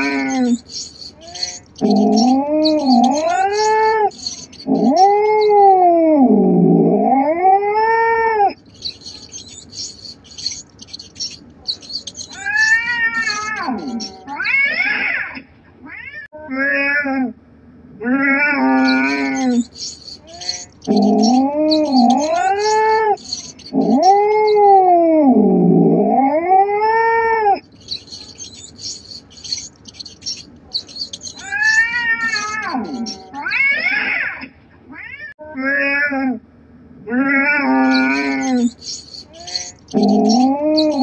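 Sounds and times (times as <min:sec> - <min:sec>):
cat yowling: 0:00.0 - 0:15.2, 0:18.1 - 0:34.3.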